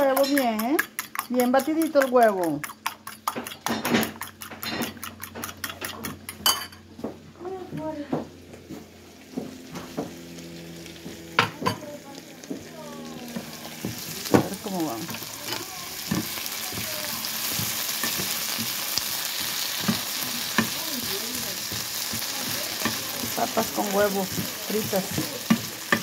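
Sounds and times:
potatoes sizzling in oil: 0.0s - 3.7s, 9.2s - 26.0s
utensil stirring in pan: 0.0s - 6.7s, 9.6s - 26.0s.

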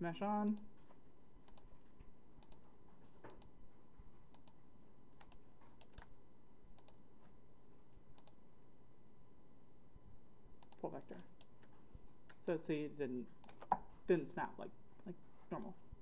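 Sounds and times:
faint steady hum: 0.0s - 16.0s
mouse and keyboard clicks: 5.2s - 6.1s.

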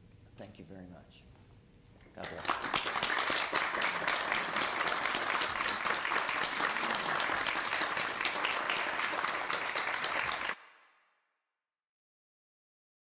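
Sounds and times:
congregation applauding: 2.2s - 10.6s.

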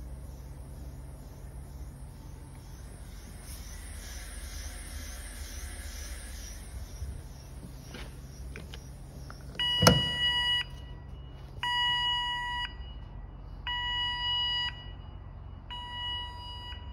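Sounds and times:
low steady hum: 0.0s - 16.9s
alarm buzzer beeping: 9.6s - 11.0s.

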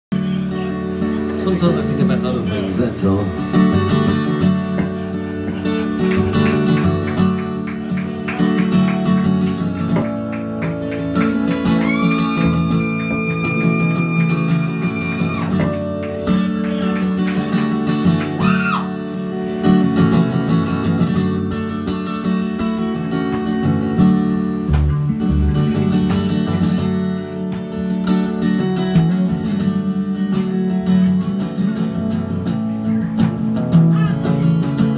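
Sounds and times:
acoustic guitar strumming: 0.1s - 34.9s
electric bass: 18.2s - 27.4s.

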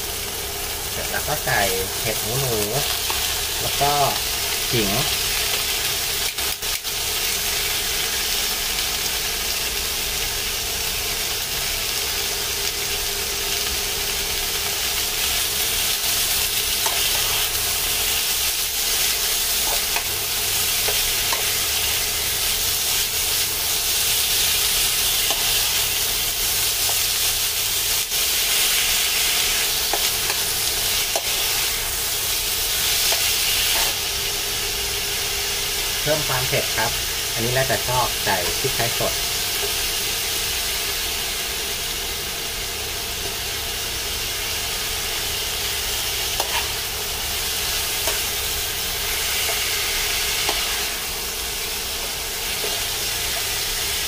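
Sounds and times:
food sizzling in a frying pan: 0.0s - 54.0s
spatula scraping and tapping a pan: 46.4s - 46.8s.

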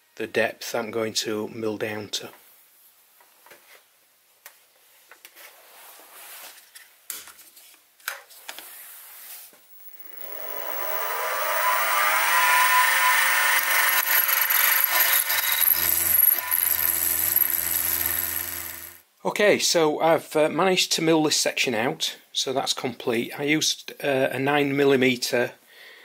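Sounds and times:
milling machine spindle whine: 9.8s - 19.0s.

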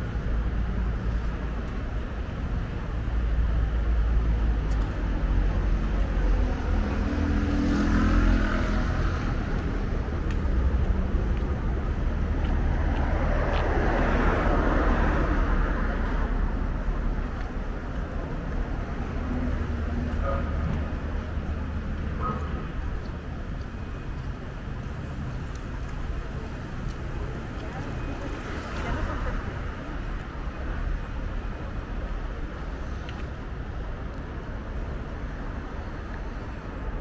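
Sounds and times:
rumble of passing cars: 0.0s - 37.0s
vehicle passing by: 5.3s - 16.3s.

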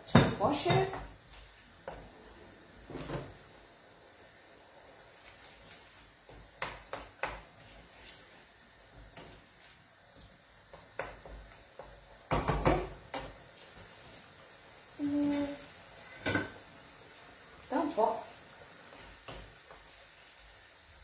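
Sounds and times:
wooden spoon stirring in pan: 0.1s - 21.0s
pans knocking on stove grates: 6.2s - 7.6s, 10.6s - 13.4s, 16.2s - 16.6s.

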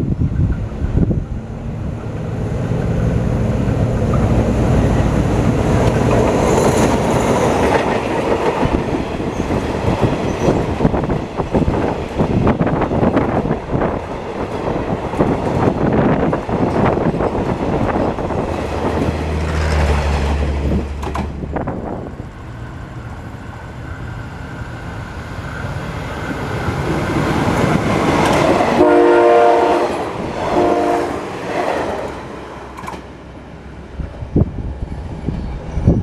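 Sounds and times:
diesel train engine rumble: 0.0s - 36.0s
train horn blasts: 28.8s - 31.3s.

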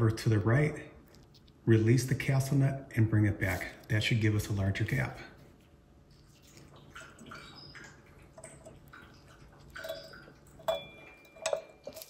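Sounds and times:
soft clicks and rustles: 1.0s - 1.7s.

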